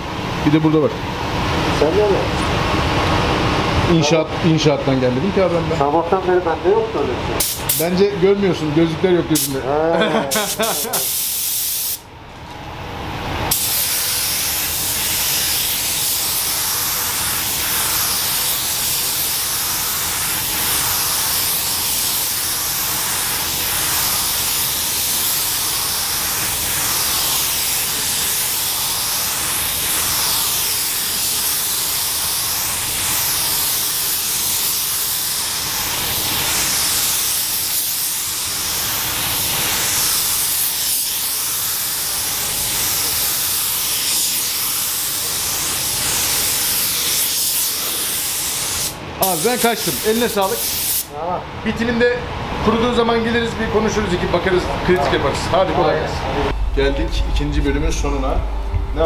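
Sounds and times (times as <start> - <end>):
paint spray gun hissing: 7.4 - 7.9, 9.4 - 9.6, 10.2 - 12.0, 13.5 - 51.1.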